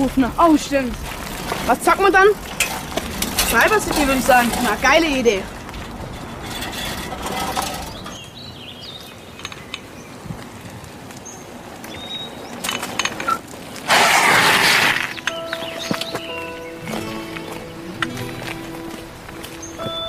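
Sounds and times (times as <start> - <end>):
bicycle on dirt track: 0.0 - 15.8
bicycle tires scraping to a stop: 0.2 - 20.0
bicycle clicks and rattles: 2.4 - 8.4, 11.7 - 16.2.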